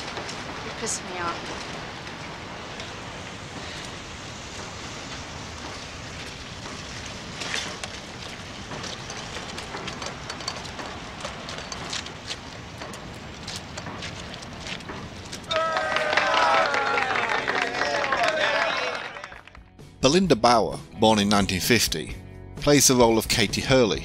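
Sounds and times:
sharp ticks and splashes: 0:00.0 - 0:15.5
steady rain falling: 0:00.0 - 0:19.6.

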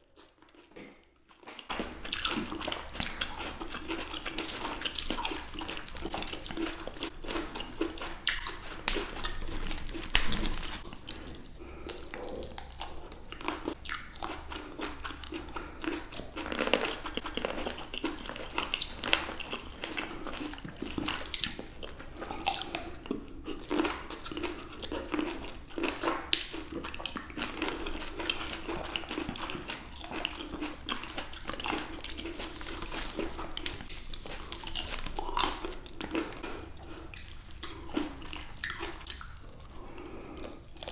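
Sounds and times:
biting and chewing grapes: 0:00.0 - 0:40.9.

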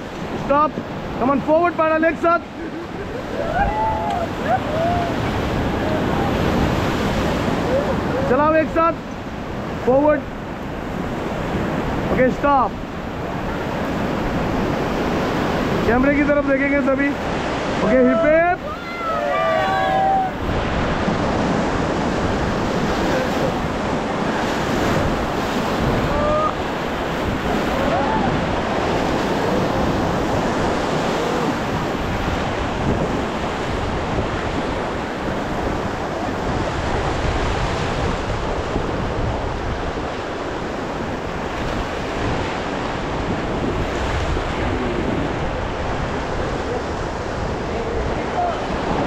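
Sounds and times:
whitewater rushing: 0:00.0 - 0:49.0
wind buffeting microphone: 0:17.1 - 0:49.0.

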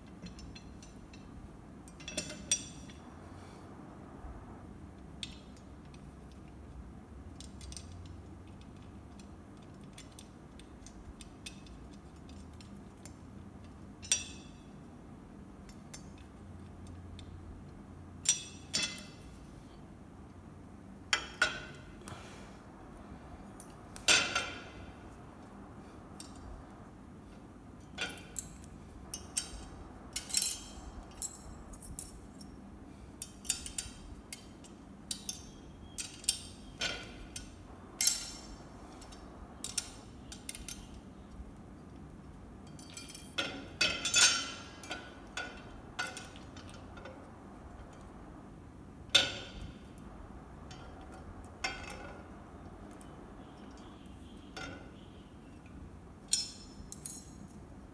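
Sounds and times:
metal stool parts clinking: 0:01.9 - 0:03.0, 0:18.2 - 0:19.3, 0:27.8 - 0:32.5, 0:33.2 - 0:41.0, 0:42.6 - 0:48.0, 0:49.1 - 0:50.0, 0:50.7 - 0:53.9, 0:54.5 - 0:57.6.

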